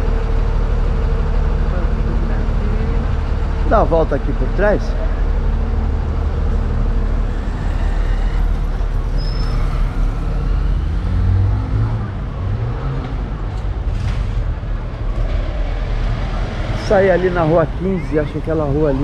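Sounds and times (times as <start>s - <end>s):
car engines on road: 0.0s - 19.0s
car accelerating: 1.6s - 19.0s.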